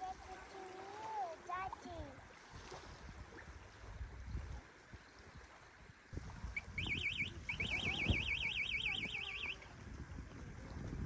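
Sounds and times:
electronic alarm warbling: 6.6s - 9.6s.

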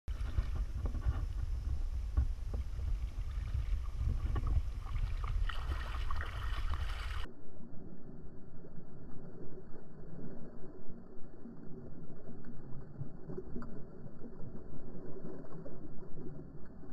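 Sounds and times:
water sloshing and splashing: 0.1s - 7.3s
wind rumbling on microphone: 0.1s - 7.3s.

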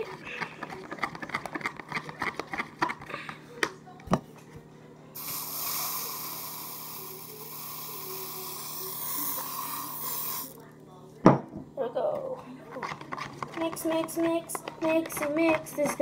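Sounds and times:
utensil scraping plastic tub: 12.8s - 16.0s.

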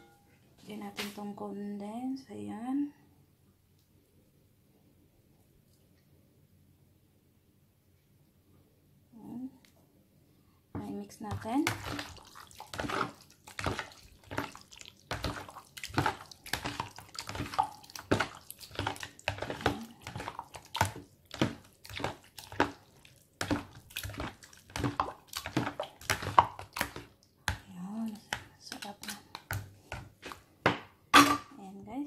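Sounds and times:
spoon stirring thick salad: 10.8s - 31.4s.

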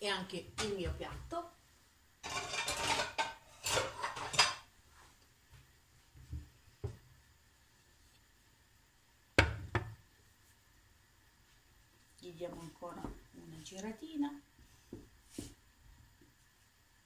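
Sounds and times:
pots and dishes clattering: 2.2s - 4.7s.

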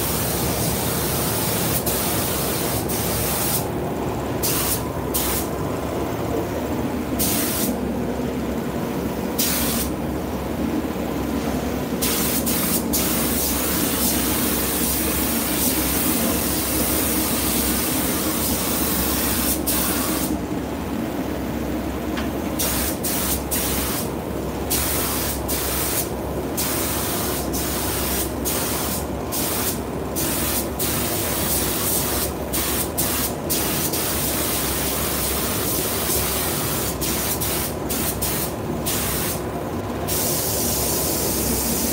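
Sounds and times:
spray gun hissing: 0.0s - 3.7s, 4.4s - 5.5s, 7.2s - 7.8s, 9.4s - 9.9s, 12.0s - 20.4s, 22.6s - 24.1s, 24.7s - 39.4s, 40.1s - 41.9s
steady low hum: 0.0s - 41.9s.

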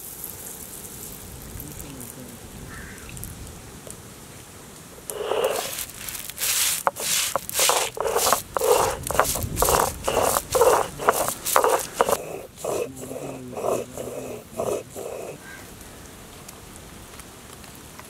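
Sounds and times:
stone roller crushing seeds: 5.1s - 15.6s.

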